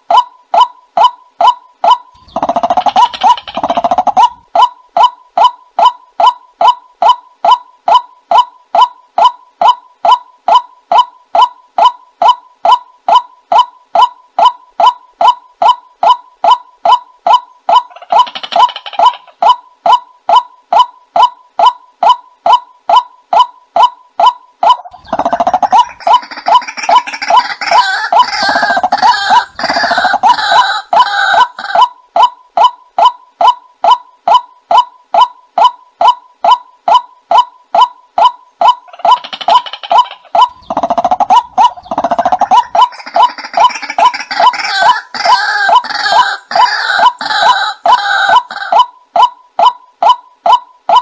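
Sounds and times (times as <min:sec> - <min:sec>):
waterhen calling: 0:01.0 - 0:22.2, 0:24.6 - 0:33.6, 0:34.3 - 0:51.0
waterhen kwak call: 0:38.2 - 0:51.0.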